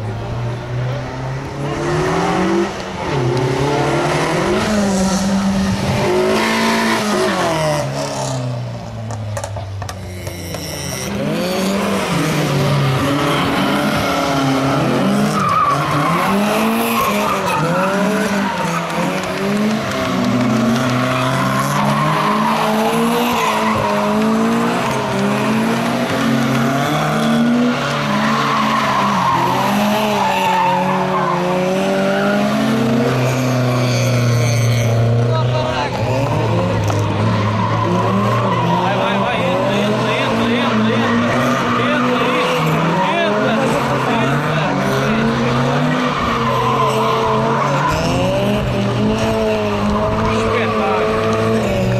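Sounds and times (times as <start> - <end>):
car engines revving: 0.0 - 51.9
tyres squealing and skidding: 0.4 - 51.9.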